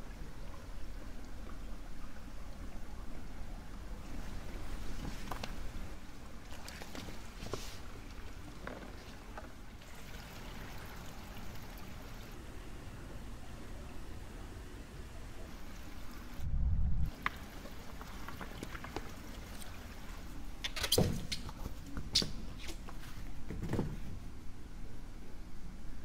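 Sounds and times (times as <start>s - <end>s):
water trickling: 0.0s - 12.4s, 17.1s - 21.4s.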